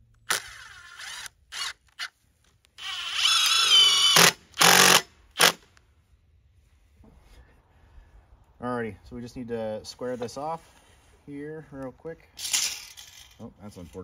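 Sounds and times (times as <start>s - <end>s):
cordless drill running: 0.3s - 2.1s, 2.8s - 5.6s.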